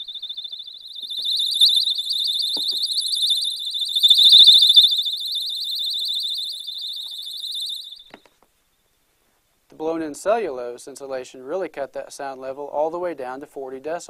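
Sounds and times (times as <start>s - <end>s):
electronic alarm beeping: 0.0s - 8.1s.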